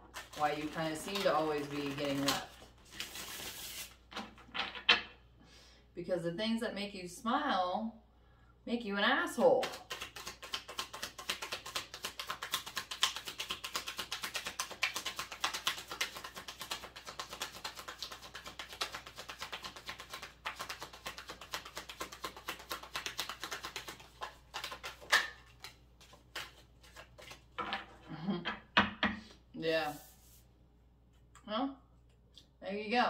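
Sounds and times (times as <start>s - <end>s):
cards being shuffled: 0.0s - 4.5s, 9.6s - 28.0s.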